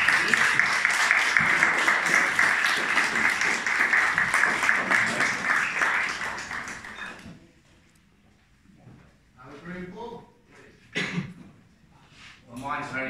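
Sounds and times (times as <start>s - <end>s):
crowd applauding: 0.0s - 7.3s.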